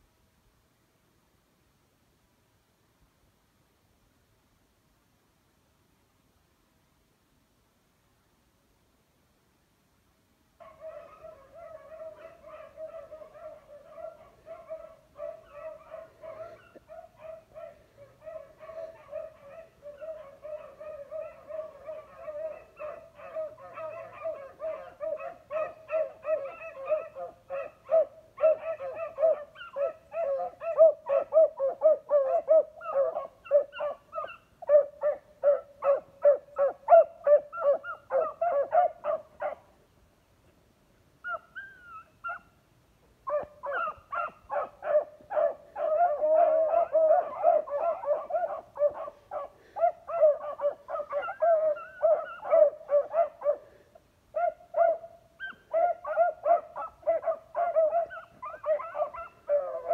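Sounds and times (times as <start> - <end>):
pack of dogs baying: 10.6 - 39.7, 43.3 - 59.9.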